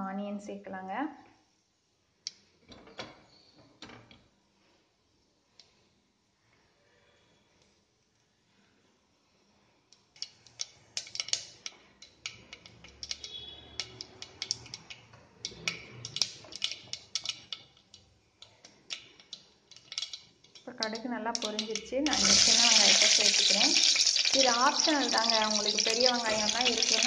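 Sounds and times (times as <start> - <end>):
seeds popping in hot oil: 10.0 - 27.0.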